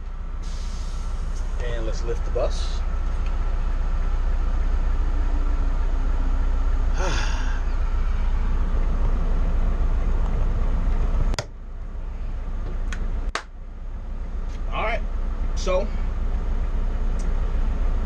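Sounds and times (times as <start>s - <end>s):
diesel engine low rumble: 0.0s - 18.0s
air suspension hiss: 0.4s - 1.5s.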